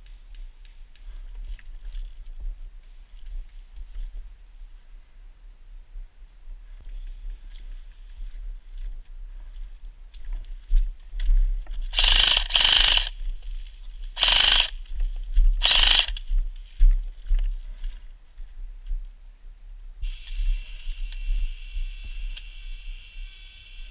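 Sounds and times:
electric toy gun firing bursts: 11.9s - 13.2s, 14.2s - 14.8s, 15.6s - 16.2s.

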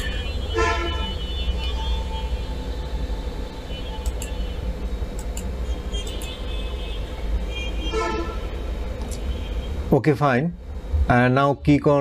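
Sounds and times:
road traffic rumble: 0.0s - 9.9s
short clicks: 4.0s - 4.4s, 5.2s - 6.4s
faint car horn toots: 6.0s - 8.4s.

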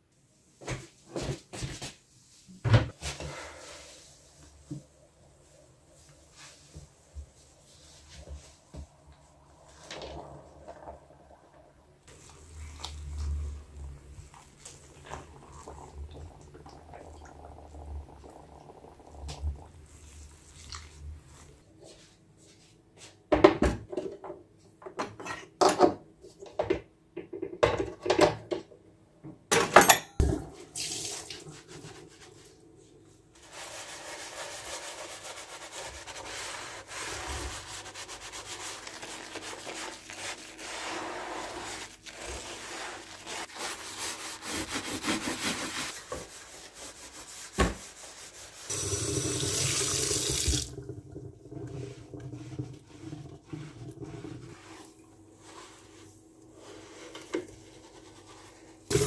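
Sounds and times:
hands swishing in soapy water: 19.6s - 21.6s, 33.4s - 48.7s, 51.7s - 59.0s
sponge scrubbing grill plates: 33.4s - 48.7s, 51.6s - 59.0s.

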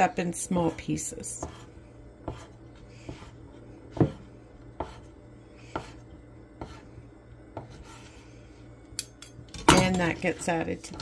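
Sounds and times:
knife chopping on cutting board: 1.4s - 5.1s, 5.7s - 6.0s, 6.6s - 6.8s.

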